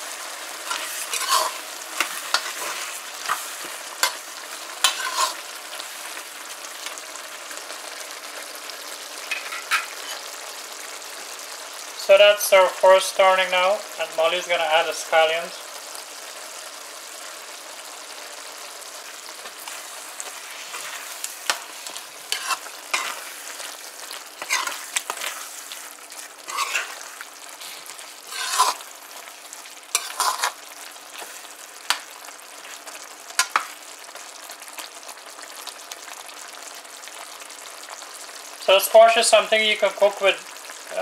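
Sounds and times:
metal spoon scraping a pan: 0.0 - 6.3, 9.2 - 10.4, 19.2 - 32.1, 33.4 - 33.8
curry sizzling: 0.0 - 41.0.

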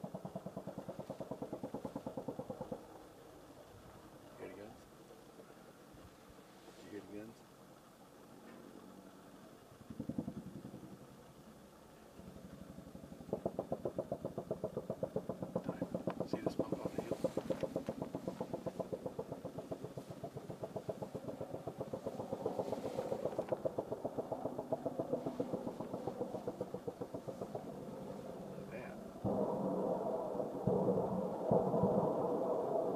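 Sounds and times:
helicopter rotor blades beating: 13.2 - 32.9.

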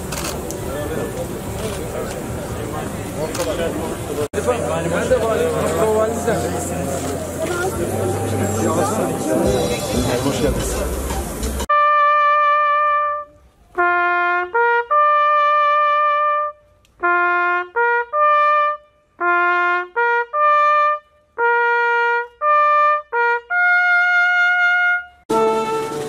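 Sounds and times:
brass band playing: 5.7 - 26.0
solo trumpet melody: 11.6 - 26.0.

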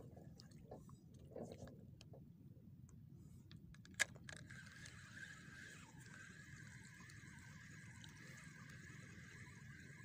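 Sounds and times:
fishing reel whirring: 4.4 - 10.0.

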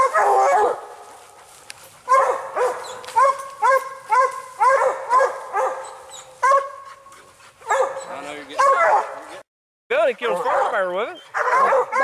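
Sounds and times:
hound barking: 0.0 - 9.4, 10.2 - 12.0.

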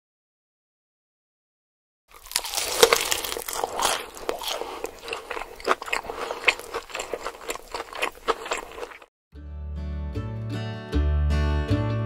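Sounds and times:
person chewing crunchy food: 2.1 - 9.1.

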